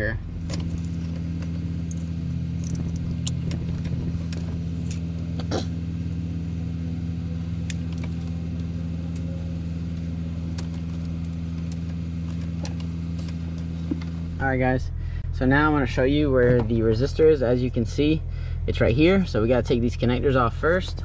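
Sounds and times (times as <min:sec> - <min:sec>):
blower fan running: 0:00.0 - 0:21.0
diesel engine idling: 0:00.0 - 0:21.0
clicks and rattles of wiring: 0:00.4 - 0:05.5, 0:07.6 - 0:09.3, 0:10.4 - 0:14.2.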